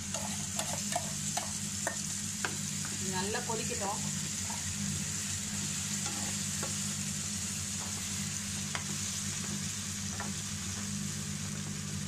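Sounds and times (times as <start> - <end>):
paste sizzling in oil: 0.0 - 10.7.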